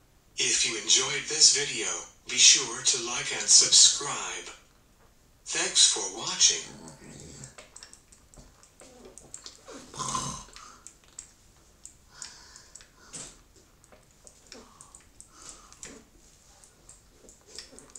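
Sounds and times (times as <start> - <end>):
soft clicks: 6.8 - 9.6, 10.5 - 17.9
man breathing: 12.1 - 13.5, 14.6 - 16.1.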